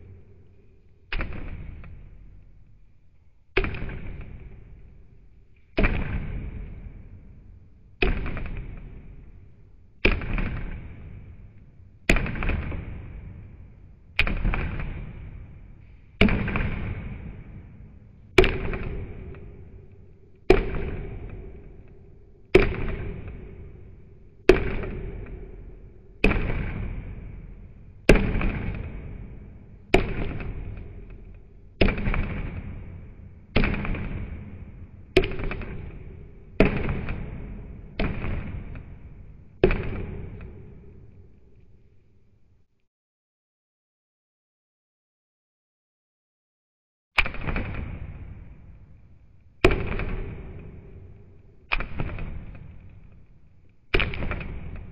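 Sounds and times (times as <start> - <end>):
wooden club pounding on chopping block: 18.4 - 19.7, 20.4 - 21.9, 22.5 - 23.7, 24.5 - 26.9.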